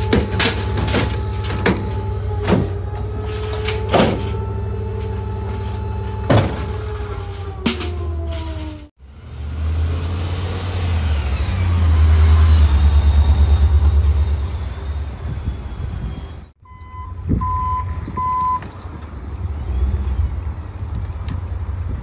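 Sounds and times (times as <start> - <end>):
garbage truck engine rumbling: 0.0 - 22.0
reversing alarm beeps: 16.6 - 18.7.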